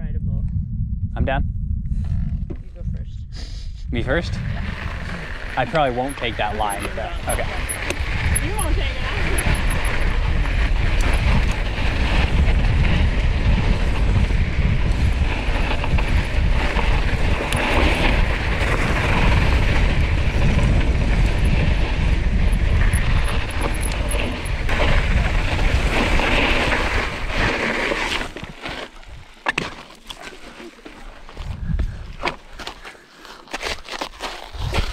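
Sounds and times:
wind buffeting microphone: 0:00.0 - 0:29.8, 0:31.2 - 0:32.8, 0:34.5 - 0:34.9
bike rattling: 0:04.2 - 0:32.9
tyres rolling on dirt: 0:04.4 - 0:33.0.

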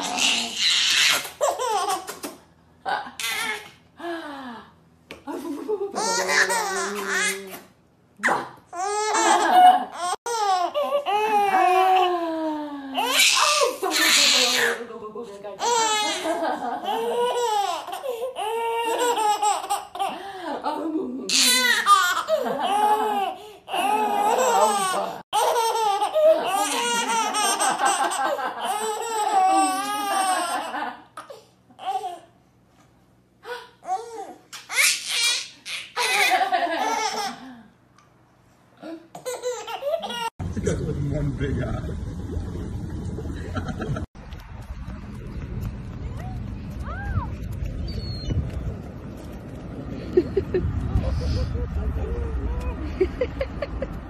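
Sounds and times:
baby laughing: 0:00.0 - 0:02.4, 0:03.2 - 0:03.7, 0:05.7 - 0:07.6, 0:08.8 - 0:12.1, 0:13.0 - 0:14.8, 0:15.6 - 0:20.2, 0:21.3 - 0:32.2, 0:33.4 - 0:37.5, 0:39.1 - 0:40.3.

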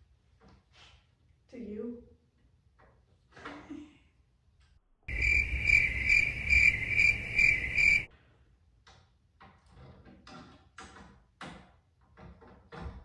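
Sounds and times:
crickets chirping: 0:05.1 - 0:08.1.

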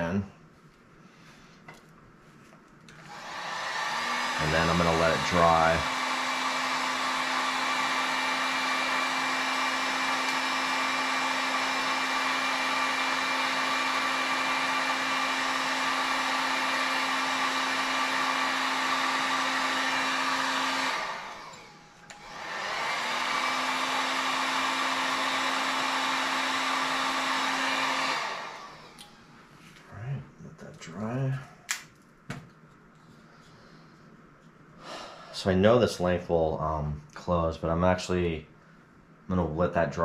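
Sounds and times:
heat gun blowing: 0:02.9 - 0:29.4.

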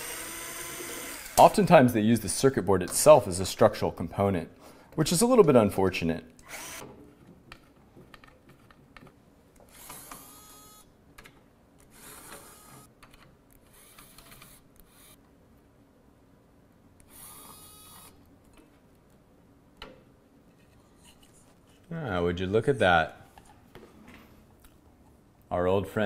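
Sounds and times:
electric screwdriver whirring: 0:00.0 - 0:01.4, 0:06.4 - 0:06.9, 0:09.7 - 0:10.9, 0:11.9 - 0:12.9, 0:17.0 - 0:18.1.

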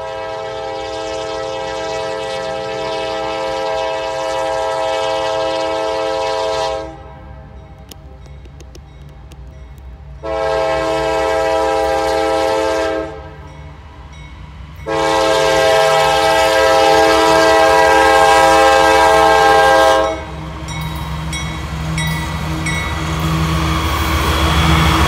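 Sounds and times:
locomotive air horn blasts: 0:00.0 - 0:07.3, 0:10.2 - 0:13.5, 0:14.8 - 0:20.4.

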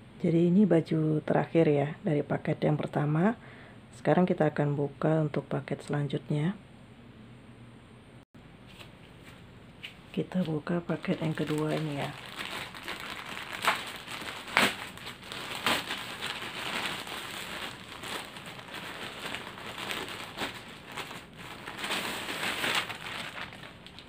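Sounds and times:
plastic bag crinkling: 0:10.9 - 0:24.0
sharp plastic crackles: 0:11.0 - 0:24.0.

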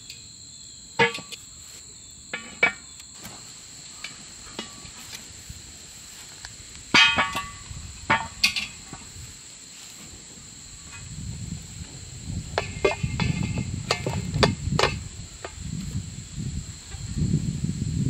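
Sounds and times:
insects trilling: 0:00.0 - 0:18.0
cast iron pot and lid clanking: 0:01.0 - 0:01.4, 0:02.3 - 0:03.4, 0:04.0 - 0:05.1, 0:06.9 - 0:09.1, 0:12.5 - 0:15.6.

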